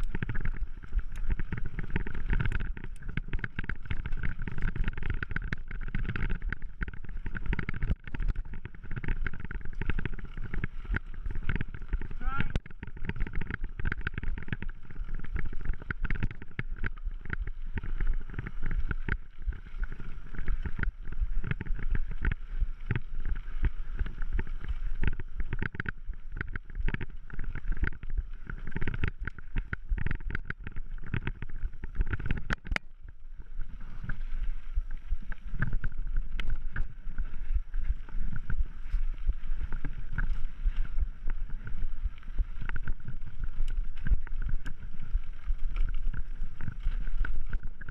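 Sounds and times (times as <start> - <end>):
bike rattling and knocking: 0.0 - 19.3.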